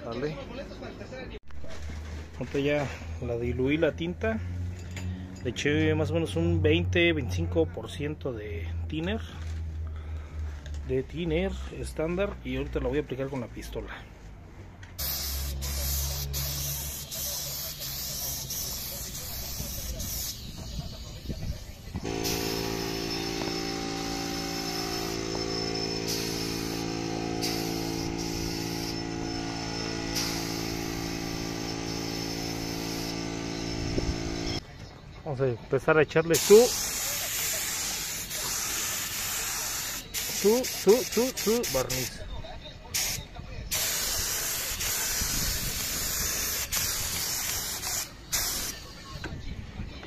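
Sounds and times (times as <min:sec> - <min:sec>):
spray gun hissing: 0:15.0 - 0:20.6, 0:22.0 - 0:34.6, 0:36.4 - 0:42.1, 0:43.0 - 0:48.8
air compressor humming: 0:22.0 - 0:34.6.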